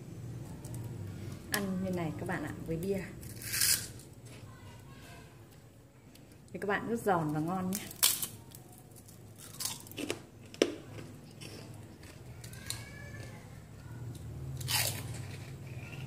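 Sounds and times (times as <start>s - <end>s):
crackers crunching: 2.7s - 4.5s, 7.2s - 16.0s.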